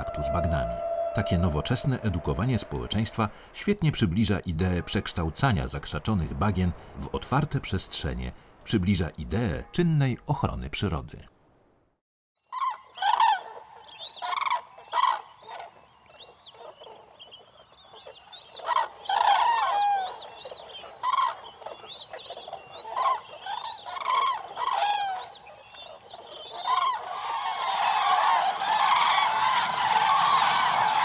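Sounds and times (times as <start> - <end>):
loud bird calls: 0.0 - 3.3, 12.4 - 31.0.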